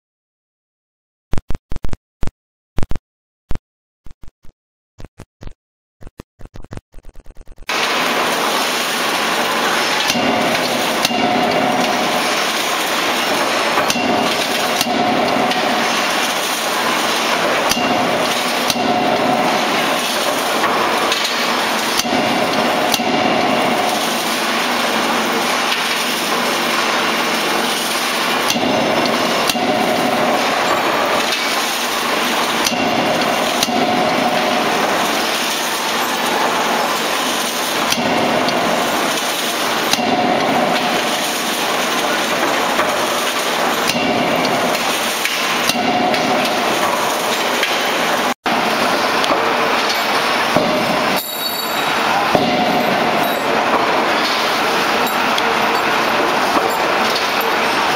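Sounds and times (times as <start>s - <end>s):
loud machinery din: 7.0s - 57.9s
forging hammer blows: 7.7s - 57.9s.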